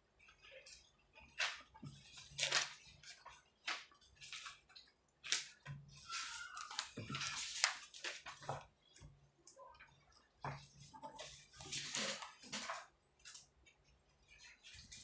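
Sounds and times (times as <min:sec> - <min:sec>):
paper rustling: 0:00.7 - 0:08.7, 0:10.6 - 0:13.6
page being turned: 0:01.4 - 0:08.6.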